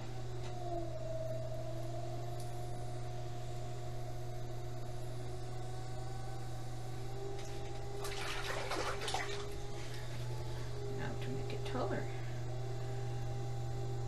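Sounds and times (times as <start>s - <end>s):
potter's wheel humming: 0.0s - 14.0s
water splashing: 8.0s - 9.6s.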